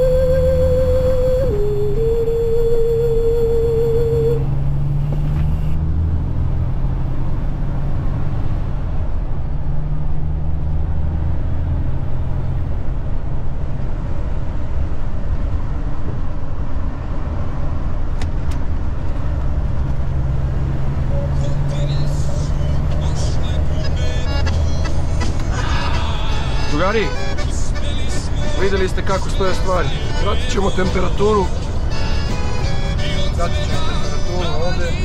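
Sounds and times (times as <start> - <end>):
truck diesel engine running: 0.0 - 5.8, 20.3 - 35.0.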